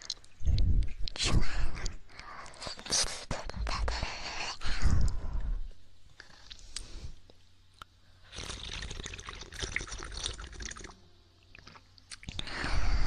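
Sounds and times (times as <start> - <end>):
wet mouth and tongue sounds: 6.2 - 12.5.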